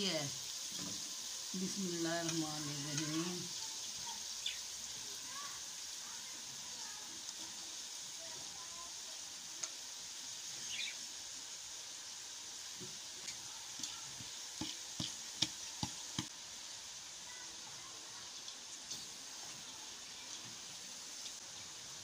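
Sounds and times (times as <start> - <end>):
steady hiss: 0.0 - 22.0.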